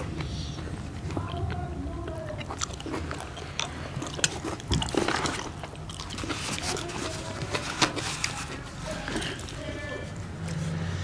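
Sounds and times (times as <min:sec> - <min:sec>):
chewing and lip smacks: 0:00.0 - 0:07.6
slurping greens: 0:00.0 - 0:11.0.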